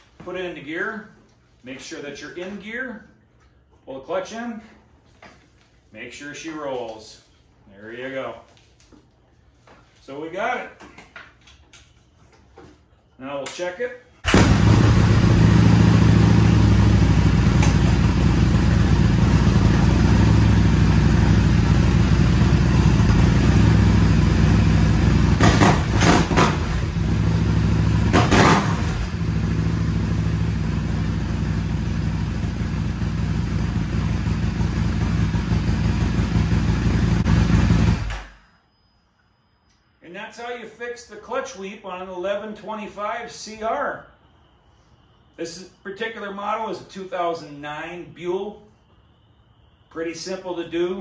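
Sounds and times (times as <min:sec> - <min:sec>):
motorcycle engine running: 0:14.3 - 0:38.1.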